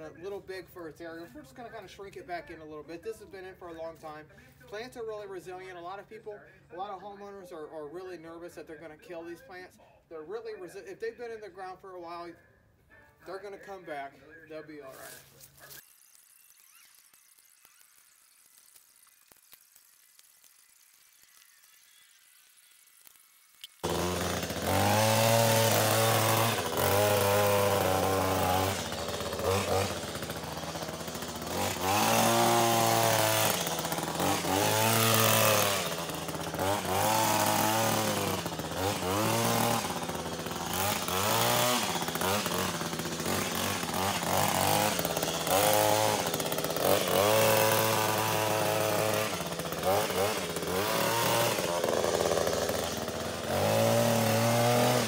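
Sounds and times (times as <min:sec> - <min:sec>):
hedge trimmer engine revving: 0:20.6 - 0:55.0.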